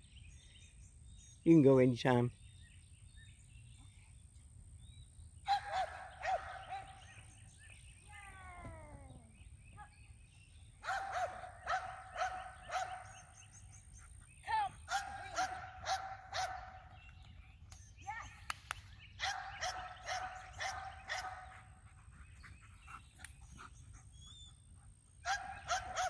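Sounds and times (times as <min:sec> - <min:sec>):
dog barking: 0:05.5 - 0:07.0, 0:10.8 - 0:13.2, 0:14.9 - 0:16.8, 0:19.2 - 0:21.6, 0:25.2 - 0:26.0.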